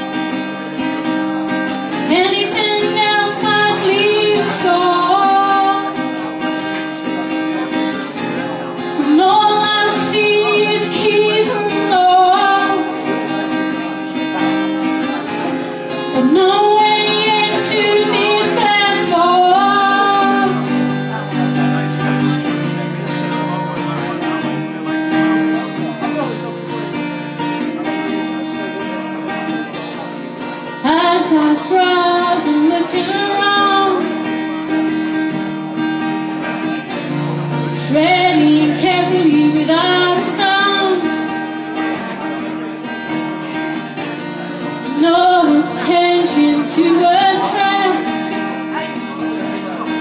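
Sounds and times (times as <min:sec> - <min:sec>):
strummed acoustic guitar: 0:00.0 - 0:50.0
woman singing: 0:01.9 - 0:06.2, 0:09.0 - 0:13.3, 0:16.1 - 0:20.9, 0:30.8 - 0:34.3, 0:37.6 - 0:41.4, 0:44.8 - 0:49.1.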